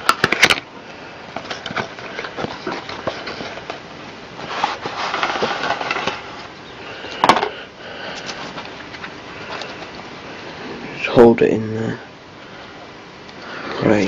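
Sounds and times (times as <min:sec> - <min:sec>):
packaging rustle: 0:04.4 - 0:06.5.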